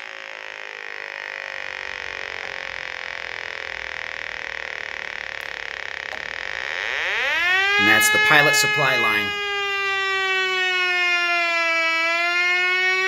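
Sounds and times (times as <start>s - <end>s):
gas detector electronic tone: 0.3s - 10.2s.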